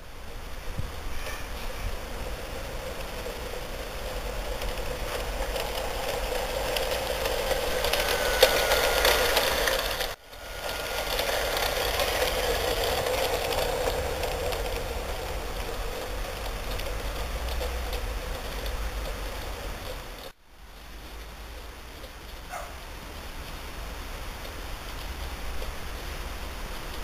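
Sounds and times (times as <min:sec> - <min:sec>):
model train motor whirring: 0:00.0 - 0:20.4
wheels clicking on rails: 0:00.0 - 0:27.0.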